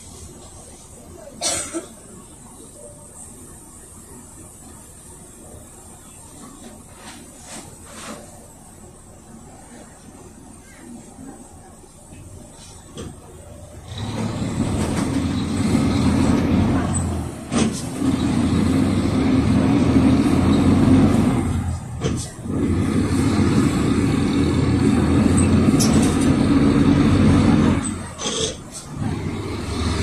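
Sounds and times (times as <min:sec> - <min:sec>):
diesel bus engine pulling away: 0:12.6 - 0:30.0.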